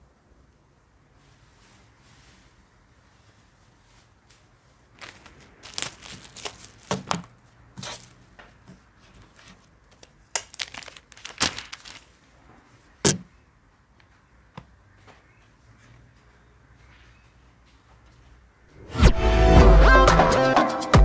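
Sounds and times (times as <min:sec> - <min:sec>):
plastic sheet rustling: 0:01.1 - 0:13.2
plastic wrap tearing and crinkling: 0:04.9 - 0:08.2, 0:09.3 - 0:12.2.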